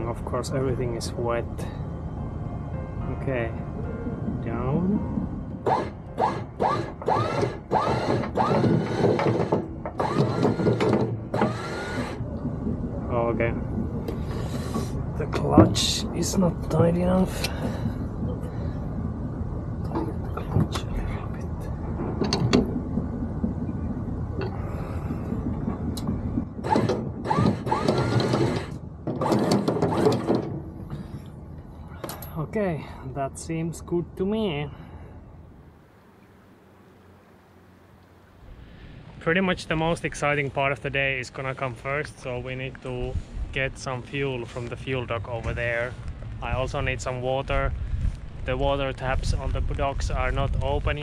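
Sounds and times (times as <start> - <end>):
electric windlass motor whining: 4.6 - 30.5.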